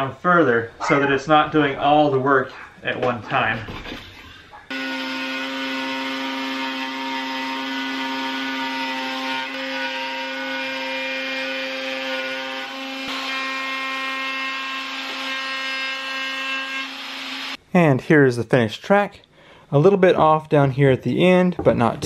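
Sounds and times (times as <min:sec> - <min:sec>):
router whining cutting wood: 0:04.7 - 0:17.6.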